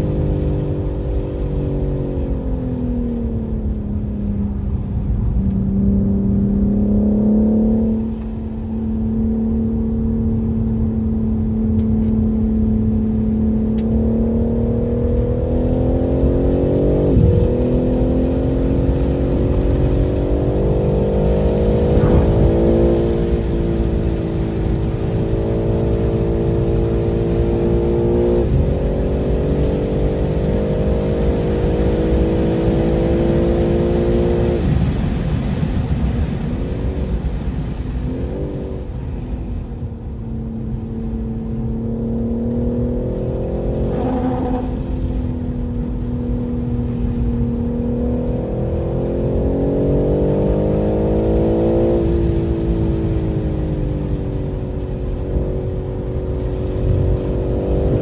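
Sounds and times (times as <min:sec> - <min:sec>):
car engine revving hard: 0:13.8 - 0:35.0, 0:41.7 - 0:45.2, 0:47.9 - 0:53.4.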